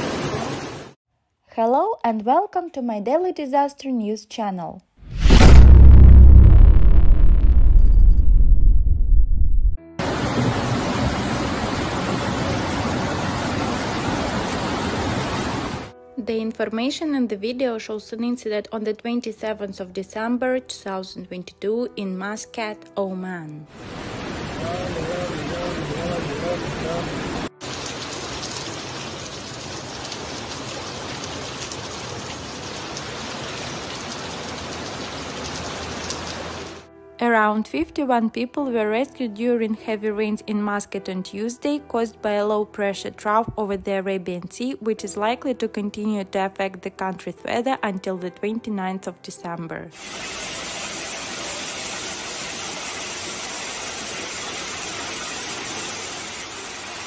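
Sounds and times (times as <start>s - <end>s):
heavy rain pouring: 0.0s - 1.0s, 10.0s - 15.9s, 23.8s - 36.8s, 50.0s - 57.0s
floodwater flowing: 23.8s - 36.8s, 50.0s - 57.0s.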